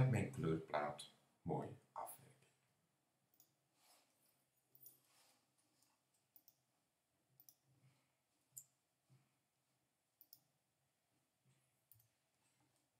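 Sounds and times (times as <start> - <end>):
computer mouse clicks: 5.8 - 6.7, 7.4 - 7.7, 10.2 - 10.5.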